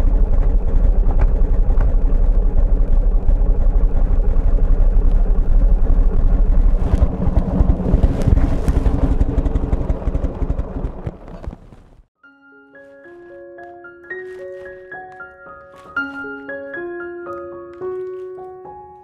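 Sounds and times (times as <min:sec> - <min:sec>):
motorcycle engine running: 0:00.0 - 0:12.1
soft piano music: 0:12.2 - 0:19.0.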